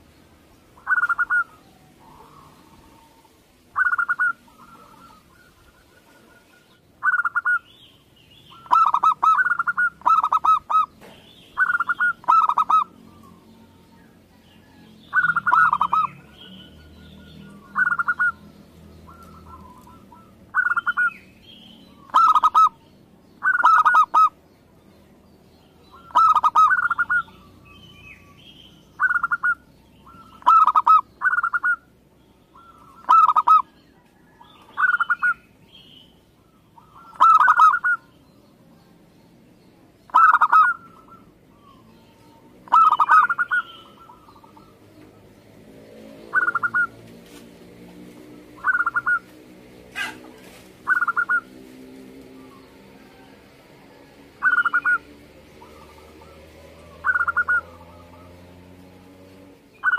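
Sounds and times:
dove cooing: 0.8s - 7.7s, 8.5s - 18.5s, 19.1s - 21.2s, 22.0s - 22.8s, 23.4s - 24.4s, 25.9s - 27.6s, 29.0s - 31.9s, 32.5s - 35.4s, 36.5s - 38.1s, 40.1s - 44.8s, 46.3s - 47.0s, 48.5s - 51.5s, 52.4s - 58.6s.

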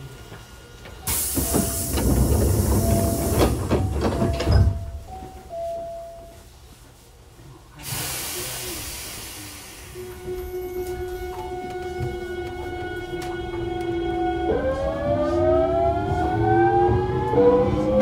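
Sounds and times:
train rumbling: 0.0s - 18.0s
clattering knocks: 1.4s - 5.0s
compressed air hiss: 7.8s - 10.0s.

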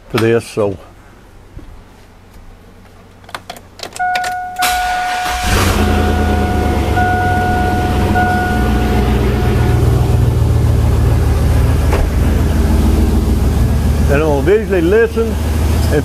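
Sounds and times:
dashboard warning chime: 4.0s - 10.6s
truck engine idling: 4.4s - 16.0s.

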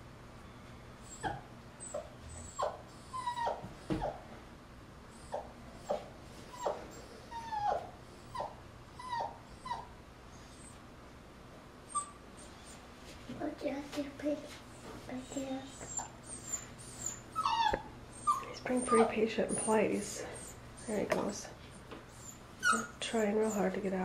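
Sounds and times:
puppy whimpering: 1.0s - 4.2s, 5.1s - 10.8s, 11.9s - 12.8s, 14.7s - 21.1s, 22.1s - 23.7s.

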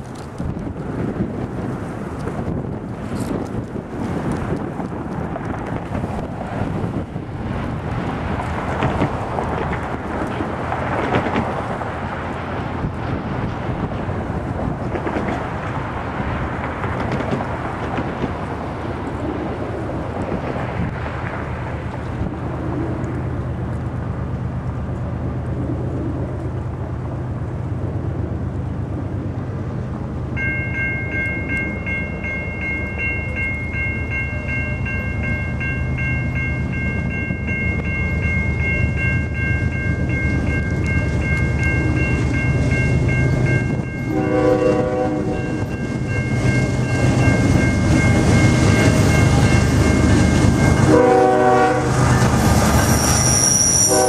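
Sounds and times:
diesel locomotives rumbling: 0.0s - 54.0s
bell ringing: 30.4s - 44.6s
train air horn blast: 44.1s - 45.6s, 50.9s - 52.1s, 52.9s - 54.0s.

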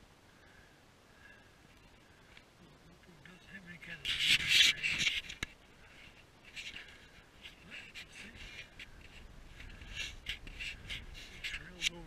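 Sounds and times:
camera handling rustling: 4.1s - 7.6s.

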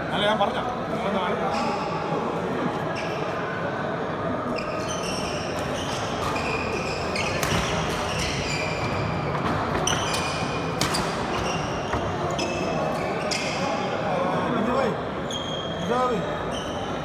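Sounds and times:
murmur of voices: 0.0s - 17.0s
shoes squeaking on wooden court: 4.6s - 13.8s, 15.2s - 17.0s
racket striking shuttlecock: 10.8s - 11.4s.

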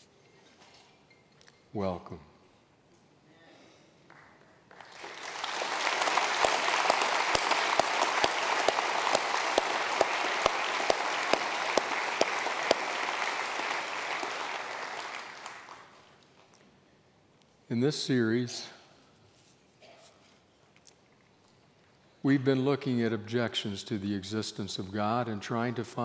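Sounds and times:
nearby hands clapping sharply: 4.1s - 16.2s
congregation applauding: 4.1s - 16.5s.

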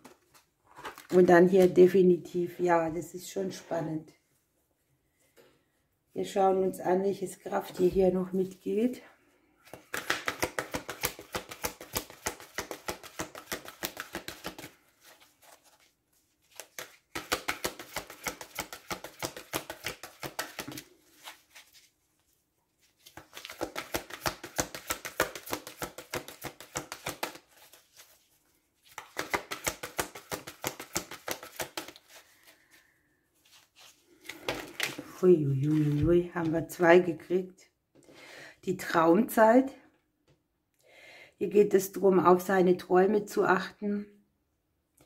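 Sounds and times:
cards being shuffled: 9.7s - 22.0s, 22.8s - 32.8s, 33.4s - 36.5s.

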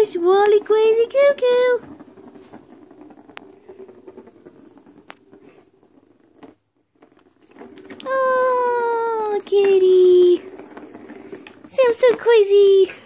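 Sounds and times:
plastic ball rolling in cardboard toy: 0.0s - 13.0s.

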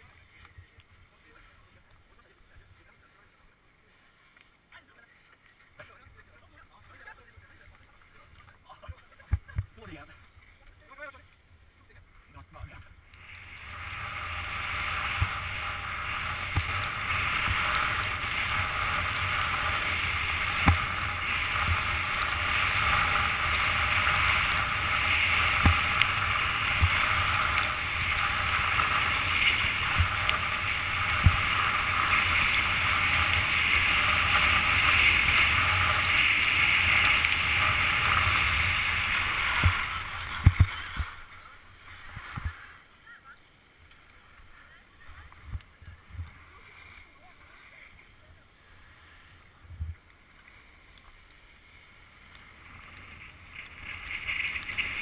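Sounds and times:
skis scraping on packed snow: 0.0s - 55.0s
wind on camera: 12.5s - 42.8s, 52.2s - 55.0s.

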